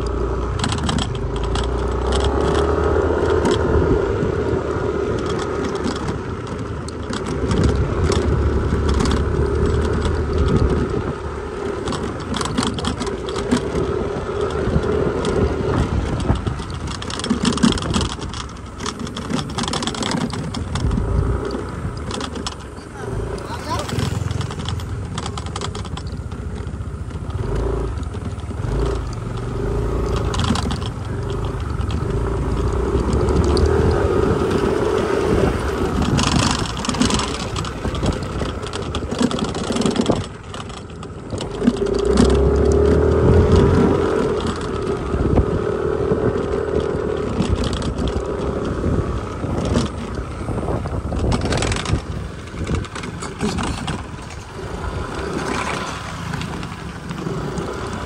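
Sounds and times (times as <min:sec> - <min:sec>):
motor scooter engine drone: 0:00.0 - 0:58.0
tyre rumble on dirt road: 0:00.0 - 0:58.0
wind: 0:00.0 - 0:58.0.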